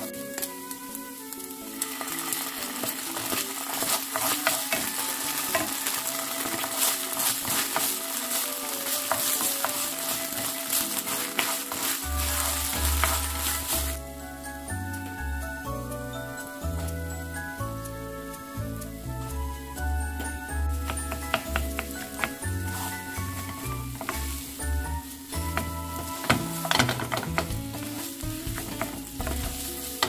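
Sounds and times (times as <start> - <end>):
food sizzling in frying pan: 0.0 - 30.0
wooden spoon scraping pan: 1.8 - 14.0, 20.3 - 30.0.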